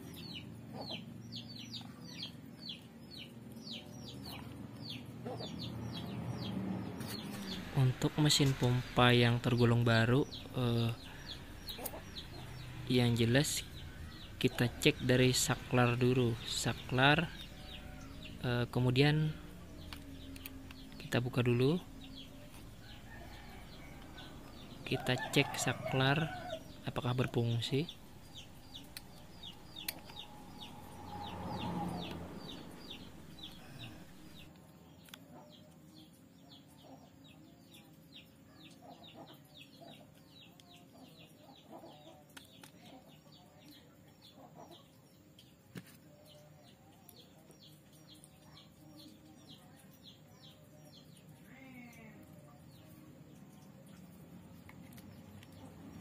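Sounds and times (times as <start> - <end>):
high bird chirps: 0.0 - 34.5.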